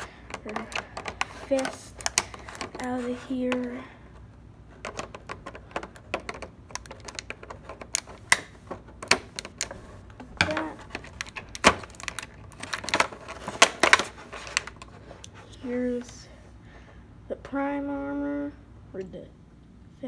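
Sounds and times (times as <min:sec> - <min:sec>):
scissors snipping plastic: 0:00.0 - 0:03.8
thin plastic crackling: 0:00.0 - 0:03.8, 0:04.7 - 0:16.2.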